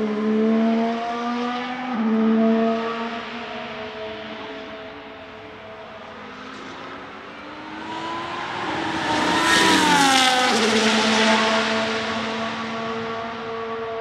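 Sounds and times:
race car engine passing by: 0:05.8 - 0:14.0.

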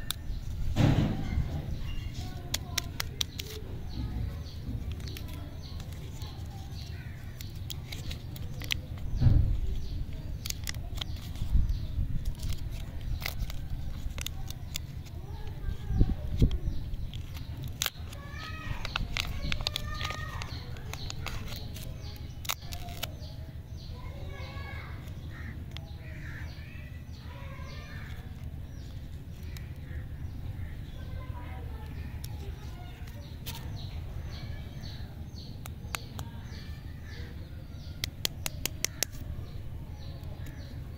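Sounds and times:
birds calling: 0:00.0 - 0:40.9
wrapper crinkling: 0:04.8 - 0:23.2
steady low rumble: 0:28.2 - 0:37.1.

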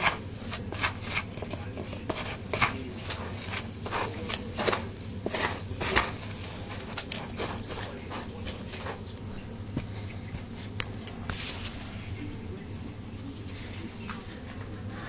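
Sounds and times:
hand rummaging through dry substrate: 0:00.0 - 0:09.1
low steady hum: 0:00.0 - 0:15.0.

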